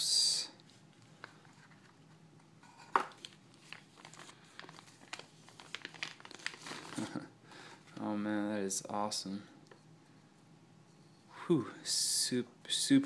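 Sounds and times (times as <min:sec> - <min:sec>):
plastic bag crinkling: 0:03.1 - 0:07.3.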